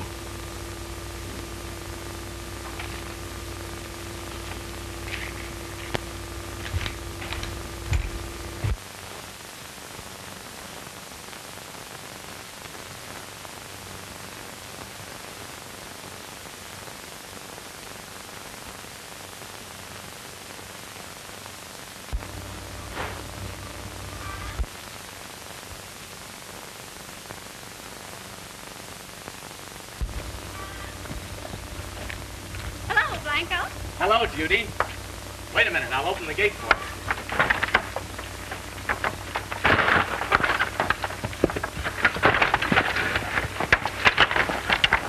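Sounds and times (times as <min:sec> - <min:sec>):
low hum: 0:00.0 - 0:08.8, 0:22.2 - 0:24.7, 0:30.0 - 0:45.0
film soundtrack hiss: 0:00.0 - 0:45.0.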